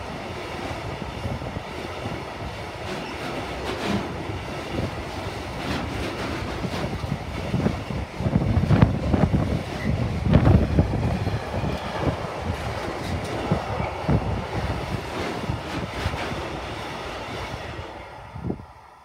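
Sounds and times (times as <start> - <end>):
train wagons rumbling on rails: 0.0 - 18.8.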